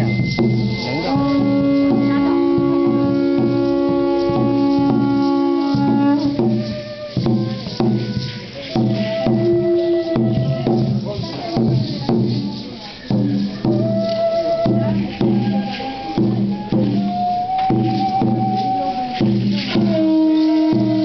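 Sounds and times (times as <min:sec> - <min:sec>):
horns sounding long notes: 0:00.0 - 0:11.0
steady drum beat: 0:00.0 - 0:21.0.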